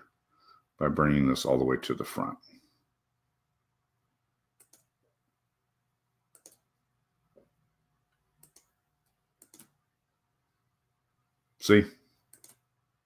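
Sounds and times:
computer mouse clicks: 0:04.6 - 0:05.0, 0:06.3 - 0:06.7, 0:08.4 - 0:09.8, 0:12.2 - 0:12.6.

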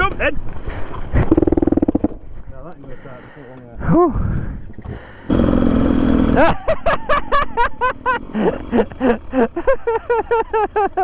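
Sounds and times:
lower laugh: 0:06.2 - 0:11.0
high-pitched laughter: 0:06.4 - 0:11.0.

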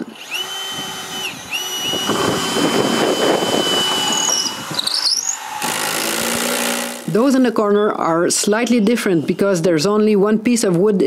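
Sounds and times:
cordless drill motor whine: 0:00.0 - 0:07.1
drill bit grinding through wood: 0:00.0 - 0:07.2.

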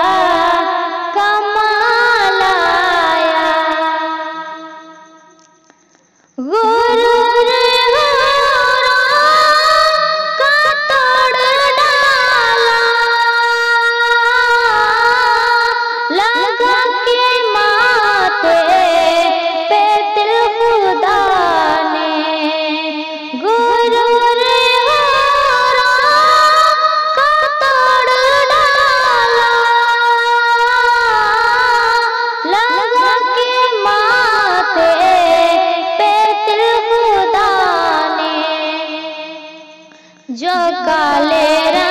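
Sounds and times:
woman singing devotional song: 0:00.0 - 0:05.8, 0:06.4 - 0:41.9.

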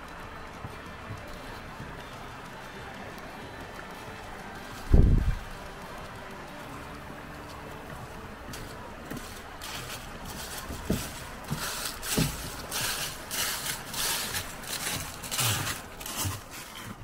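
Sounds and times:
footsteps crunching dry leaves: 0:08.4 - 0:17.0.

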